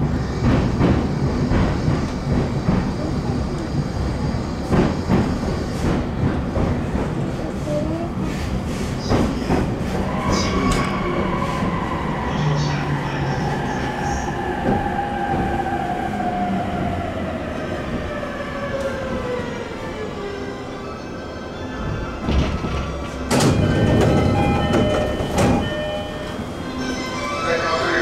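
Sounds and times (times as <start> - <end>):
train running rumble: 0.0 - 19.9, 21.7 - 28.0.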